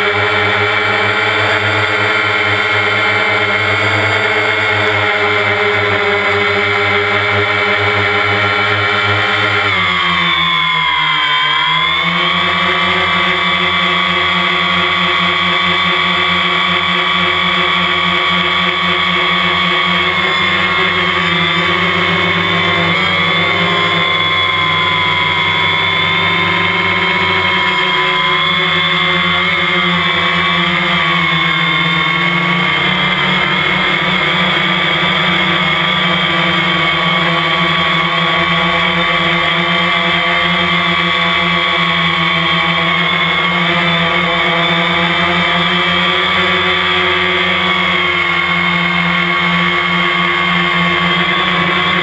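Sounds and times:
drone propellers whining: 0.0s - 52.0s.

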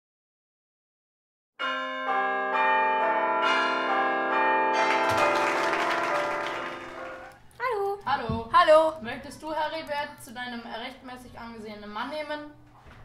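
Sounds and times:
church bells ringing a peal: 1.6s - 7.3s.

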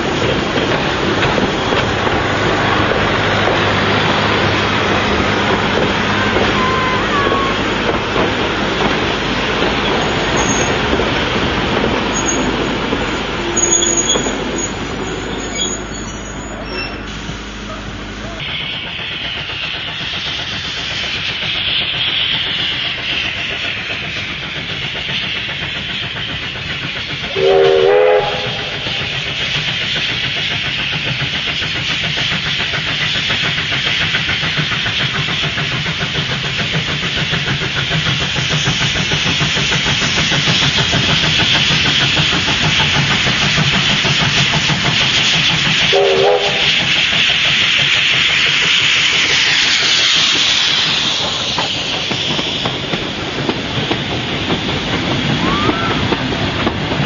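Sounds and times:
steam locomotive exhaust beats: 0.0s - 57.0s
steam whistle blast: 6.2s - 7.7s, 27.3s - 29.1s, 45.9s - 46.8s.

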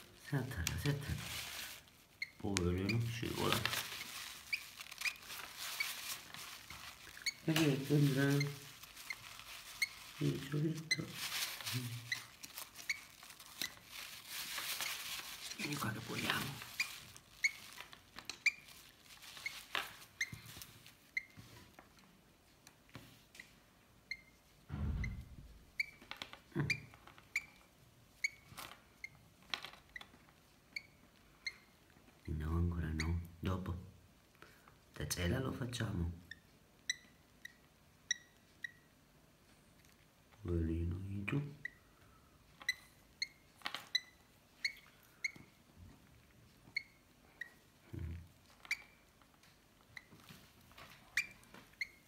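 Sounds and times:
low thump: 24.7s - 25.6s.

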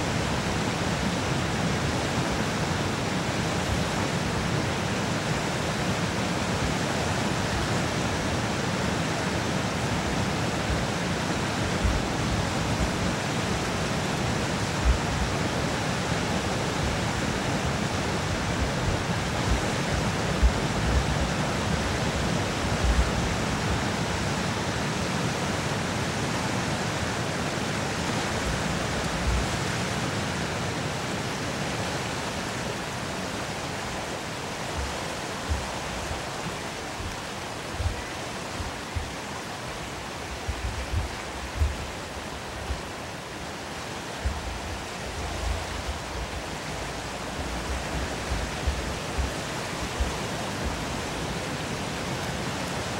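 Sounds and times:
roar of rushing white water: 0.0s - 52.9s
low thumps: 40.5s - 42.0s.

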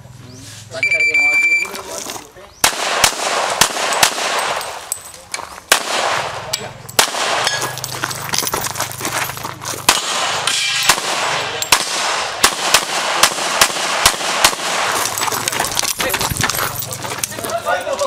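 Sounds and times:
pistol shots: 2.6s - 5.0s, 5.7s - 7.9s, 9.8s - 15.1s.

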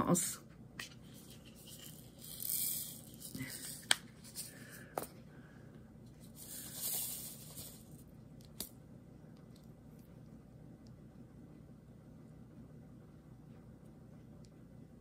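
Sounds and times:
small beads rattling in plastic tray: 1.6s - 3.7s, 6.4s - 7.9s.

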